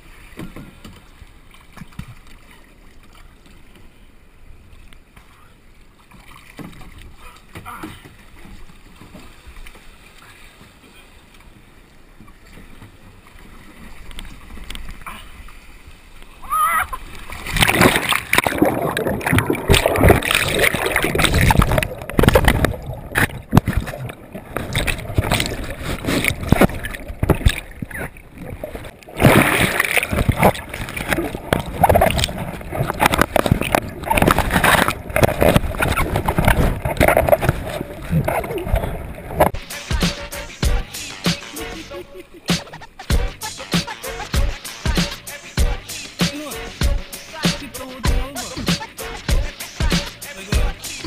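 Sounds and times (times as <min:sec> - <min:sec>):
water sloshing and splashing: 0:00.0 - 0:39.7
wind on microphone: 0:17.4 - 0:39.6.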